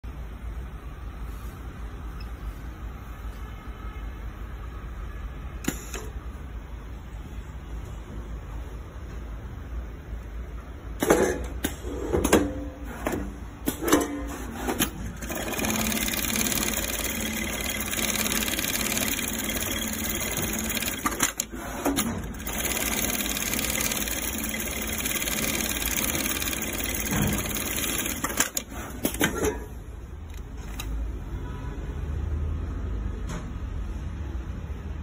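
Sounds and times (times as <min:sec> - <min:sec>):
industrial sewing machine stitching: 0:13.8 - 0:29.4.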